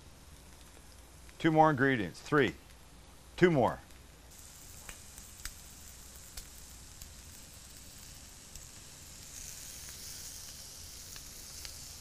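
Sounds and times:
shrimp sizzling on a griddle: 4.3 - 12.0.

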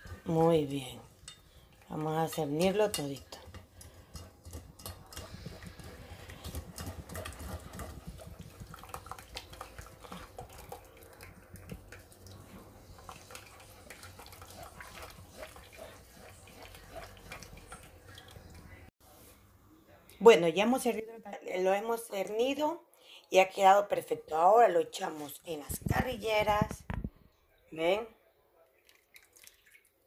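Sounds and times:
spatula scraping in a mesh sieve: 0.0 - 10.4, 12.6 - 18.3
liquid dripping: 28.8 - 30.0.

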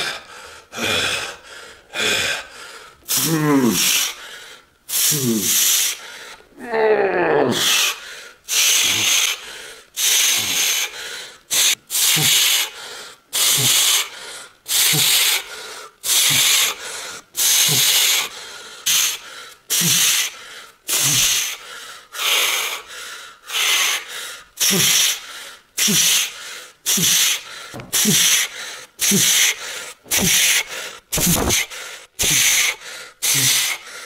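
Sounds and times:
man breathing hard: 0.0 - 6.6, 7.5 - 34.0
man grunting: 3.1 - 4.0, 6.6 - 7.8.

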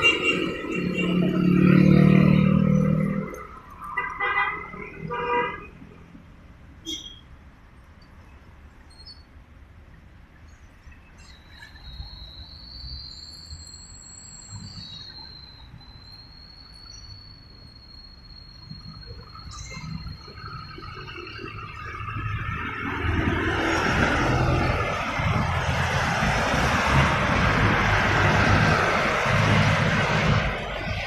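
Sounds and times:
highway traffic rumble: 0.0 - 31.0
high-pitched whine: 12.0 - 25.8.

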